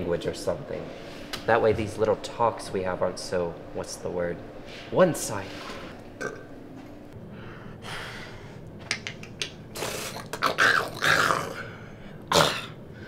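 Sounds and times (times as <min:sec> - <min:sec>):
person growling and grunting: 0:09.8 - 0:12.8.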